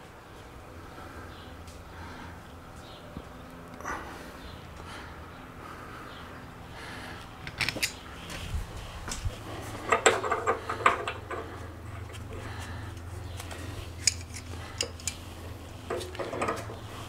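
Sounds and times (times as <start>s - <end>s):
metal fittings clinking: 14.0s - 15.2s.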